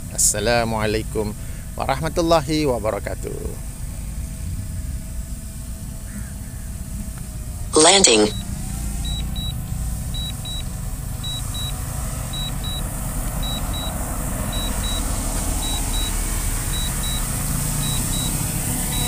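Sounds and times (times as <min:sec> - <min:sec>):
short high beeps: 0:07.8 - 0:08.4.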